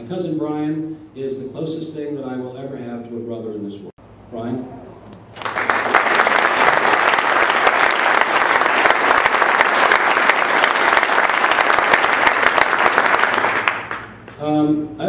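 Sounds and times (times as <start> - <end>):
audience applauding: 5.3 - 14.4.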